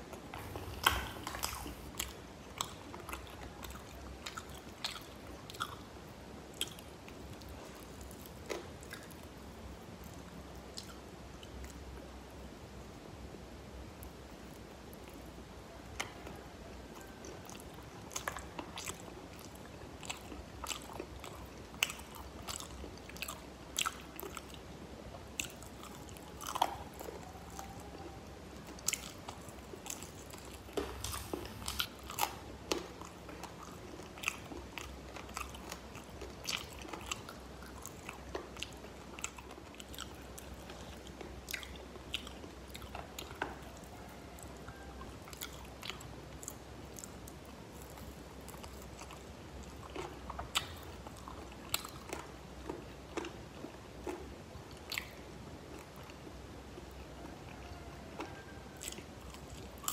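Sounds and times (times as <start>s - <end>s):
crunchy chewing of fried chicken: 0.0s - 13.1s, 13.8s - 59.9s
soft mouth sounds: 0.1s - 5.9s, 25.4s - 38.0s.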